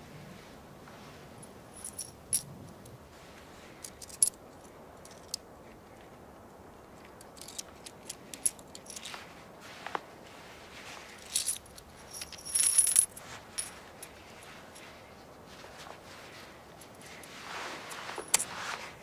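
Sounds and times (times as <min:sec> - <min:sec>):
coins clinking in a palm: 0:11.2 - 0:13.8.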